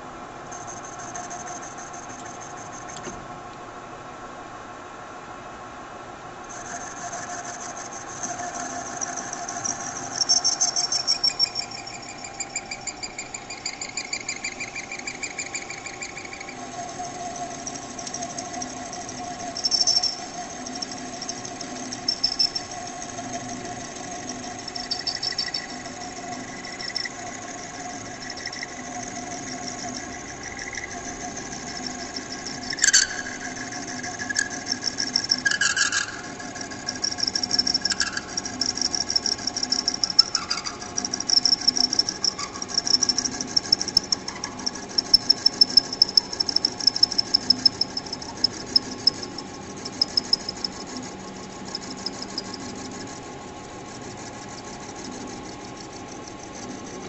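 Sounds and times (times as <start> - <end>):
high-pitched cutting whine: 0.0 - 3.0, 6.5 - 57.0
lathe machine hum: 6.5 - 35.4
sharp ticks: 6.6 - 53.2.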